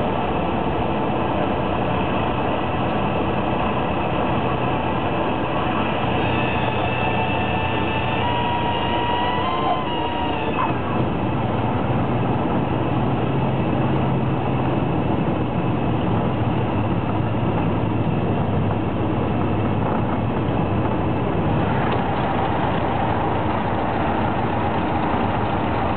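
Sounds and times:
aircraft engine and propeller droning: 0.0s - 25.9s.

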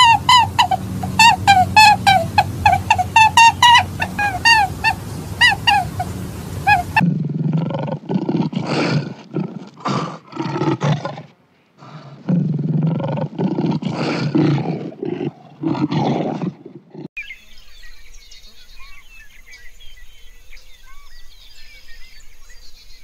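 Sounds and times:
high chirping calls: 0.0s - 7.0s
lion roaring and growling: 0.0s - 17.1s.

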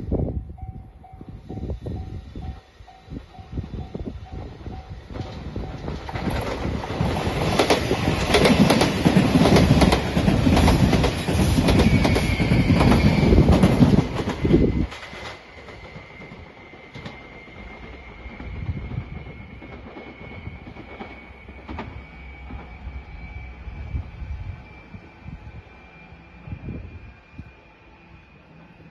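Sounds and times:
electric train passing: 0.0s - 28.9s.

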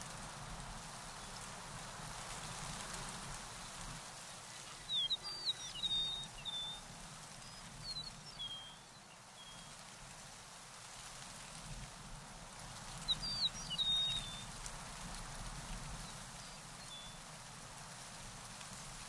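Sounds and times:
outdoor background hiss: 0.0s - 19.0s
songbird chirping: 4.6s - 9.8s, 13.0s - 14.5s.

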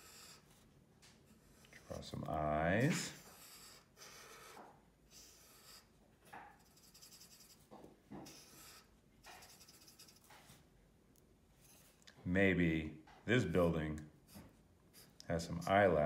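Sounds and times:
marker scratching on paper: 0.0s - 0.6s, 1.3s - 10.6s, 14.2s - 16.0s.

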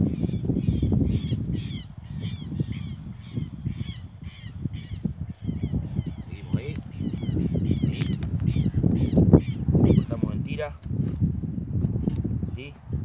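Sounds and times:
bird calling in harsh notes: 0.0s - 10.3s.

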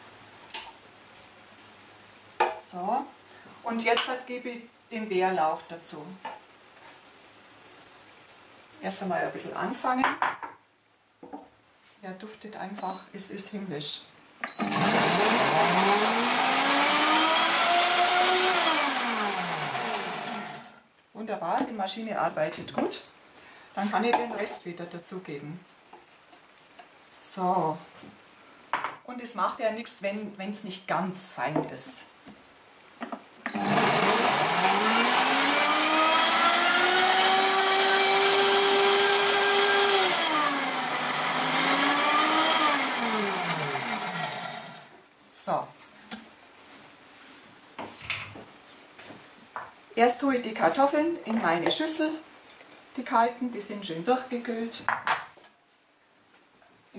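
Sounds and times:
blender motor whining: 14.6s - 20.8s, 33.5s - 44.9s.

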